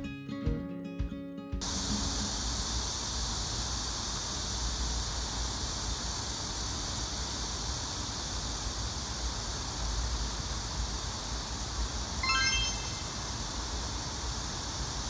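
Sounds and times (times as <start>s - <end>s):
even hiss: 1.6s - 15.0s.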